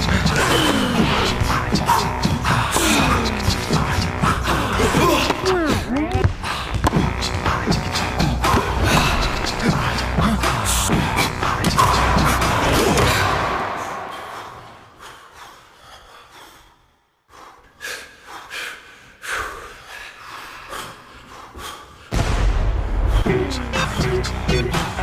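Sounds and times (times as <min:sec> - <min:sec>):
loud music: 0:00.0 - 0:14.8, 0:22.1 - 0:25.0.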